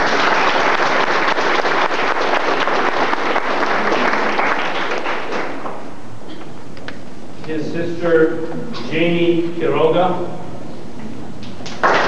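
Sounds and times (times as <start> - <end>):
audience applauding: 0.0 - 5.9, 11.6 - 12.0.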